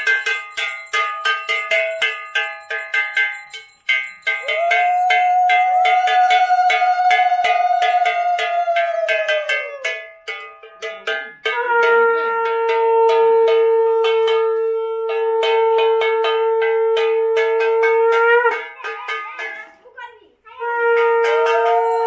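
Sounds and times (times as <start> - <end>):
bell ringing rapidly: 0.0 - 19.8, 20.9 - 22.0
conch shell blast: 11.2 - 18.8, 20.6 - 22.0.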